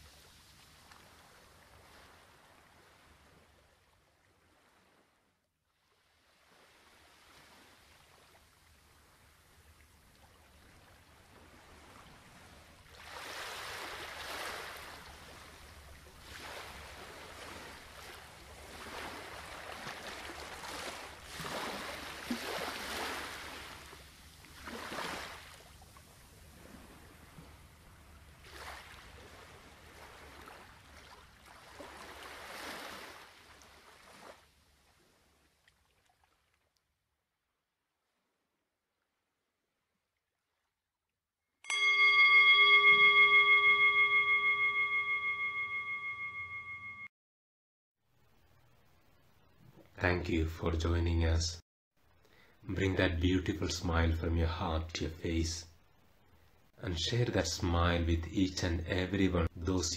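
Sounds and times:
water surges like waves: 0:00.0 - 0:05.2, 0:05.8 - 0:36.7
flowing water: 0:06.8 - 0:36.6.

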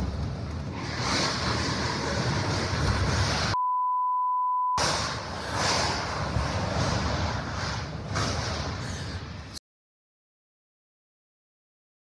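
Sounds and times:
censor bleep: 0:03.6 - 0:04.8.

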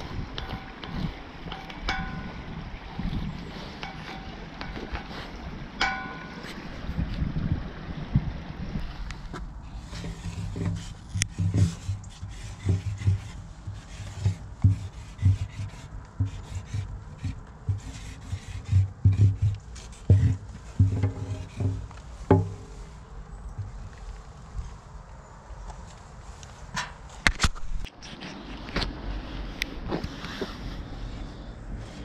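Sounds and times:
marker scratching on glass: 0:09.9 - 0:21.8.

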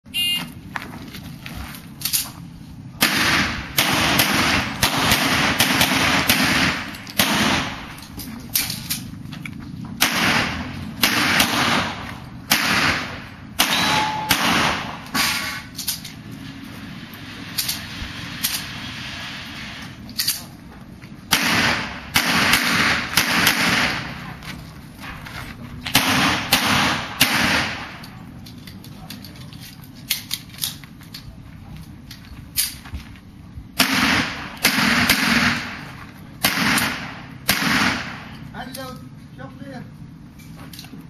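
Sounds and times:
pistol shots with echo: 0:03.0 - 0:07.9, 0:10.0 - 0:15.5, 0:21.3 - 0:24.2, 0:25.9 - 0:28.0, 0:33.8 - 0:35.8, 0:36.4 - 0:38.3.

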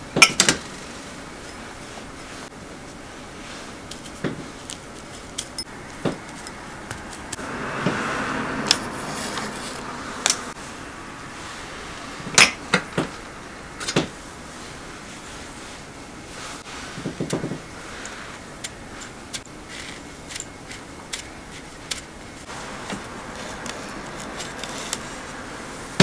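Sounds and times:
soft scraping rustle: 0:06.3 - 0:10.6, 0:22.4 - 0:25.5.

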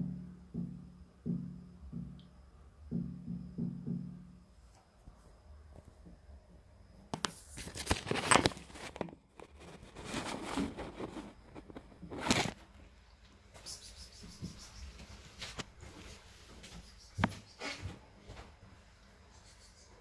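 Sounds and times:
phone handling rustling and scraping: 0:07.7 - 0:12.6.

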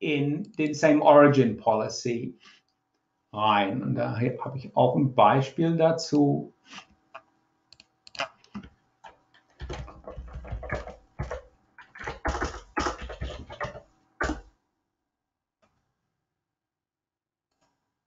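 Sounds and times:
computer keyboard typing: 0:07.8 - 0:11.4.

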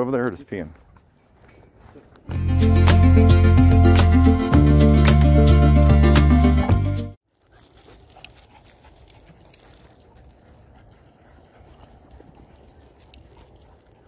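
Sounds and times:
footfalls on grass: 0:00.6 - 0:02.4.

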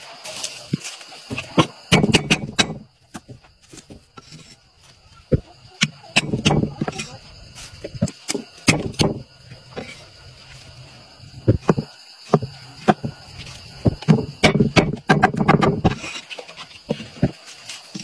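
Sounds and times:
cleaver chopping on wooden block: 0:01.6 - 0:02.8, 0:14.4 - 0:16.0.

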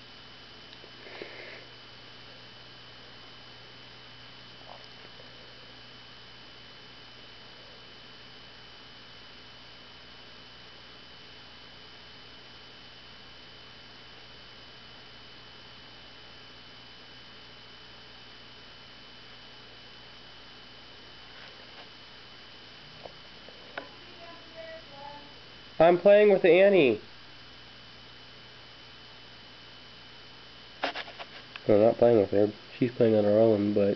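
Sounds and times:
background hiss: 0:00.0 - 0:10.6, 0:20.1 - 0:33.9
high-pitched whine: 0:30.5 - 0:33.9.

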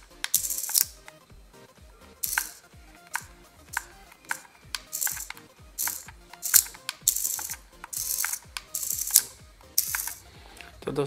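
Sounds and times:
servo motor gear buzz: 0:02.2 - 0:10.3.

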